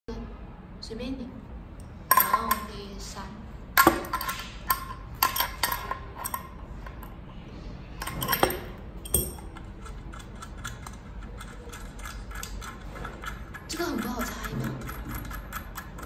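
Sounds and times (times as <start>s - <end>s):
wrench clinking on metal nut: 2.1s - 2.7s, 3.8s - 6.6s, 8.0s - 16.0s.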